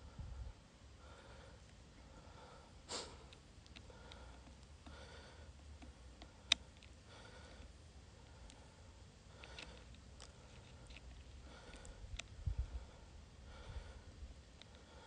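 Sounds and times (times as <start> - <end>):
short breath: 2.2 - 3.3
camera handling rumble: 9.4 - 12.4.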